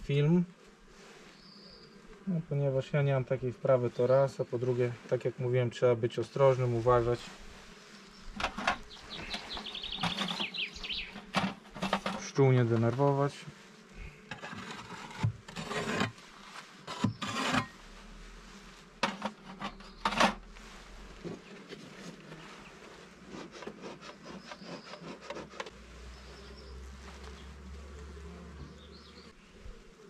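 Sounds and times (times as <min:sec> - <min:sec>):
honeybees buzzing: 0:00.1 - 0:30.0
wooden hive frames scraping: 0:06.3 - 0:29.4.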